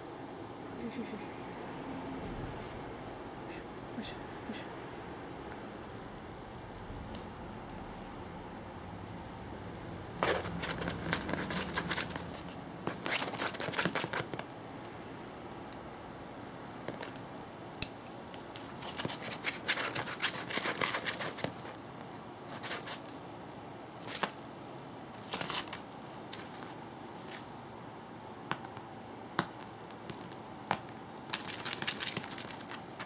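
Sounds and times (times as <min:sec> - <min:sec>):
claws scrabbling on straw mat: 0:10.2 - 0:15.9, 0:16.5 - 0:23.2, 0:31.2 - 0:33.0.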